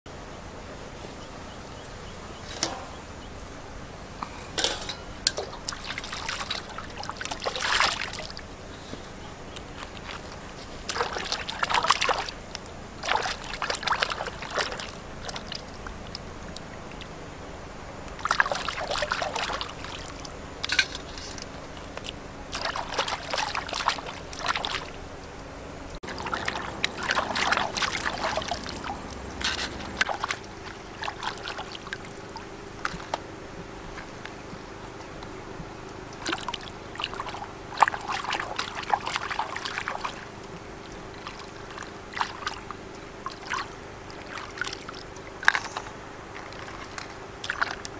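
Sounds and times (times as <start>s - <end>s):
hands splashing in water: 5.4s - 8.5s, 9.7s - 12.4s, 13.0s - 15.9s, 18.2s - 25.0s, 26.0s - 33.1s, 36.2s - 45.7s, 46.4s - 47.9s.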